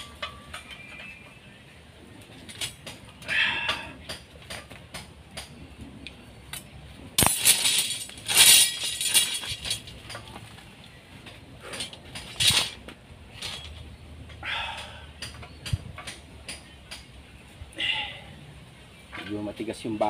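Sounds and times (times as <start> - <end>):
steel bars clanking: 0.0 - 1.4, 6.6 - 10.5, 11.2 - 17.1
metal rattling: 2.2 - 5.8, 6.5 - 17.2.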